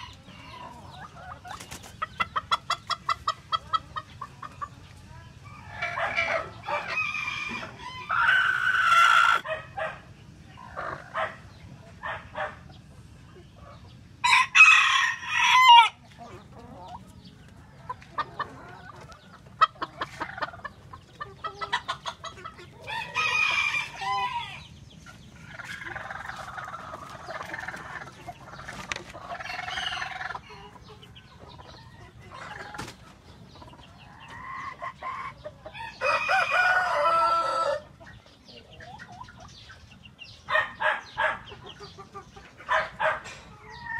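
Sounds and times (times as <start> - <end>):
hens clucking: 0.0 - 43.9
roosters crowing: 5.4 - 12.6, 14.2 - 17.0, 18.1 - 30.8, 34.0 - 38.0.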